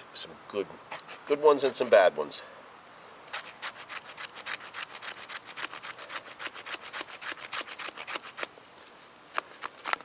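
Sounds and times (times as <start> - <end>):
knife scraping wood: 0.9 - 2.0, 3.3 - 8.6, 9.3 - 10.0.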